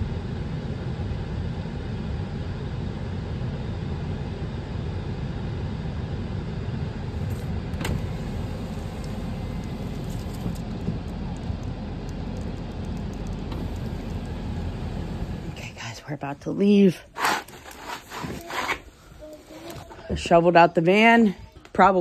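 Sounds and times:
blizzard wind rumbling: 0:00.0 - 0:16.8.

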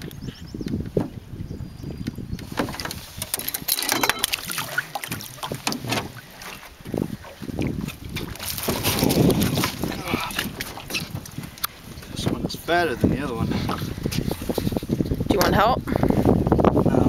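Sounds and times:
net and fish knocking on hull: 0:02.5 - 0:11.6
fish splashing in water: 0:03.5 - 0:11.4.

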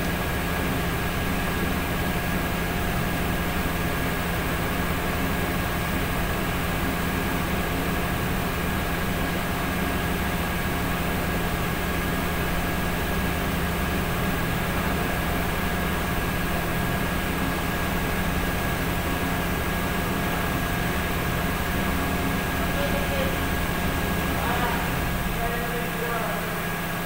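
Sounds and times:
workshop machinery drone and hiss: 0:00.0 - 0:27.0.

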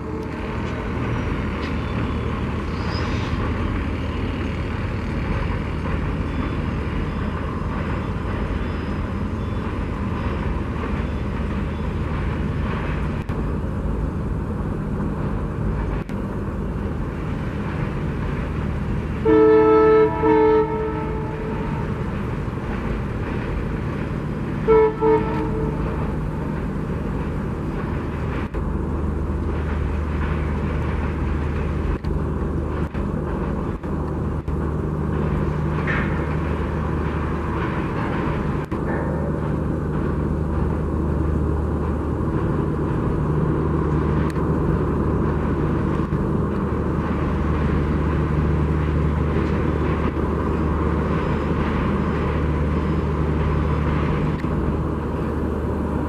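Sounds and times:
train rolling across viaduct: 0:00.0 - 0:56.0
locomotive horn: 0:19.2 - 0:22.0, 0:24.6 - 0:26.5.

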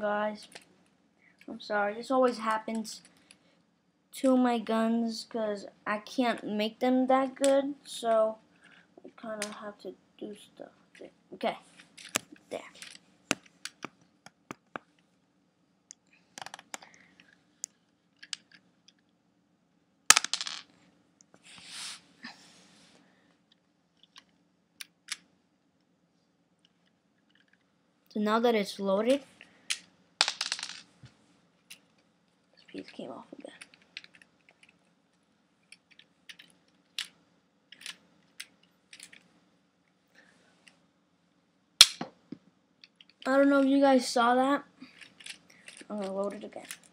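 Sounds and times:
plastic toy pieces clicking: 0:12.8 - 0:13.0, 0:18.2 - 0:18.6, 0:33.6 - 0:34.8, 0:35.7 - 0:39.2, 0:44.9 - 0:46.9.

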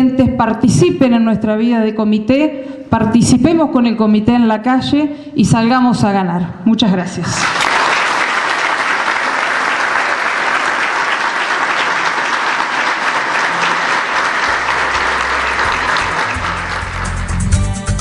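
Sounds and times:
audience applauding: 0:07.4 - 0:17.7
music with low bass: 0:14.6 - 0:18.0.

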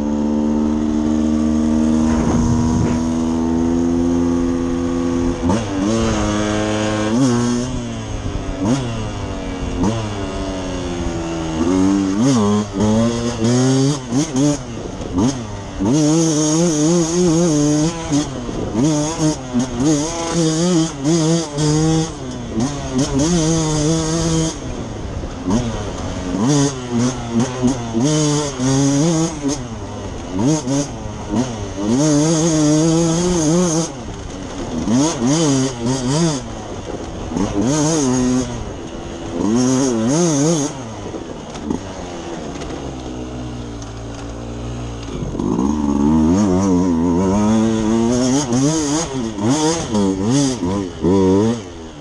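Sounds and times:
two-stroke motorcycle engine: 0:00.0 - 0:52.0
motorcycle throttle bursts: 0:00.2 - 0:10.5.

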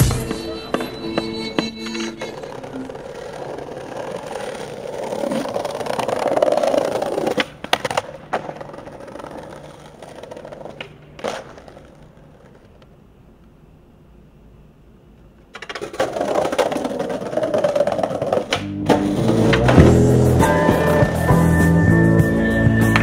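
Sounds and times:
skateboard clacks: 0:00.0 - 0:13.6, 0:15.2 - 0:20.9
skateboard wheels rolling on stone: 0:00.0 - 0:13.6, 0:15.1 - 0:23.0.

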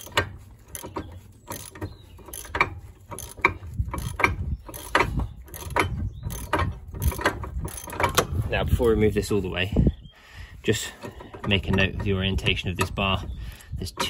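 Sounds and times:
ratchet wrench clicking: 0:00.0 - 0:08.3.

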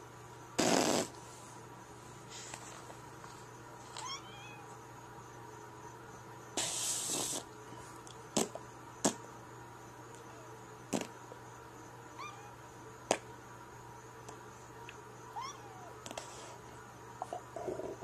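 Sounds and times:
cat meowing faintly: 0:04.0 - 0:04.7, 0:15.3 - 0:16.0.

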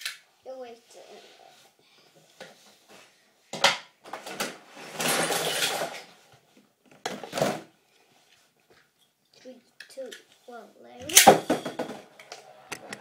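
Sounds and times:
hard objects knocking: 0:11.1 - 0:13.0.

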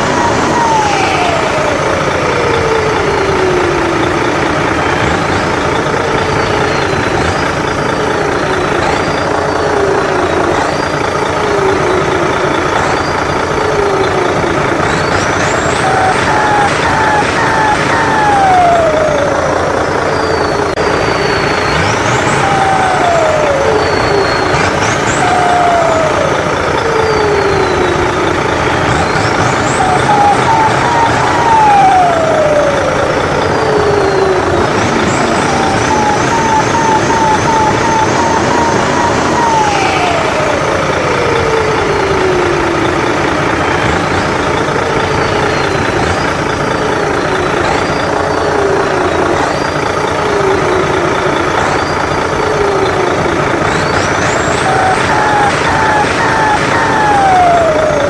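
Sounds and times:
turbine whine: 0:00.0 - 0:58.0.

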